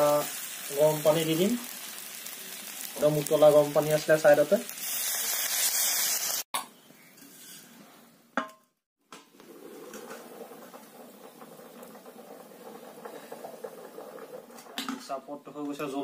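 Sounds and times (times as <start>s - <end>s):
curry simmering hiss: 0.0s - 6.5s, 9.5s - 15.5s
water hissing in hot pan: 0.0s - 6.5s, 9.5s - 14.8s.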